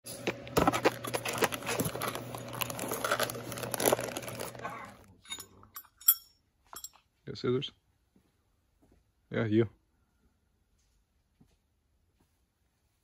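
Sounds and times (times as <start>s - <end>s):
plastic bag and cardboard rustling: 0.1s - 5.1s.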